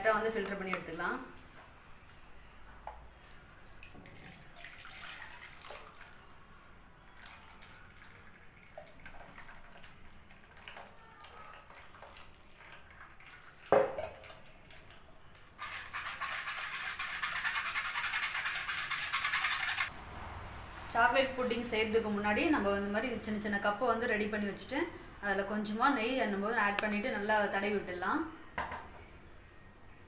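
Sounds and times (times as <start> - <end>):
batter trickling through strainer: 15.6 - 19.9
scratchy scraping: 15.6 - 19.9.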